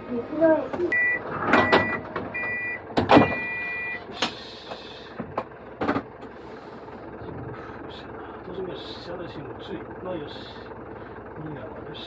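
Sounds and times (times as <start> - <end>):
electronic beeps: 0.9 - 4.0.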